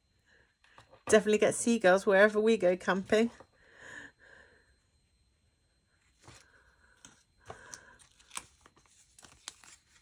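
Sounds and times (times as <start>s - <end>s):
tape rustling: 7.5s - 10.0s.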